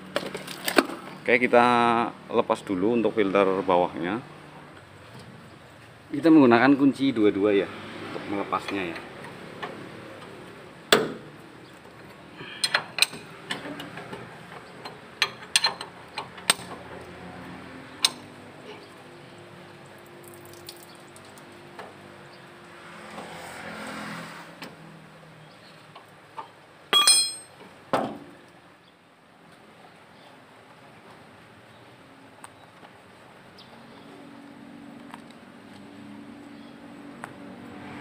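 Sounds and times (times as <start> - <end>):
wrench clinking on metal: 14.8 - 16.7, 26.9 - 27.6
loud metal clanks: 26.9 - 27.6.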